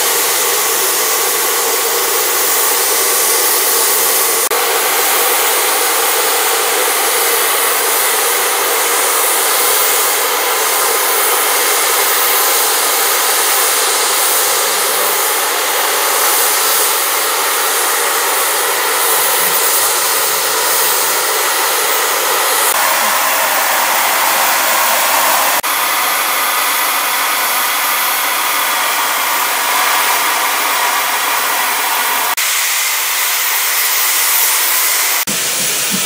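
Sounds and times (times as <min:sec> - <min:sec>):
steam locomotive venting steam: 0:00.0 - 0:36.0.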